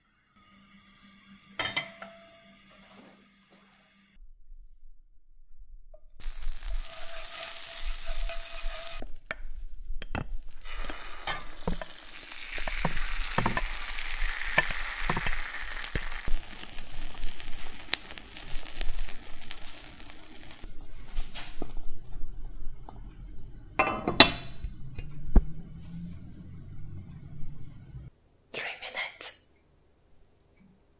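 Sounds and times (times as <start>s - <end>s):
butter and egg sizzling: 6.2s - 22.8s
spatula scraping a pan: 6.3s - 9.1s, 10.3s - 21.6s.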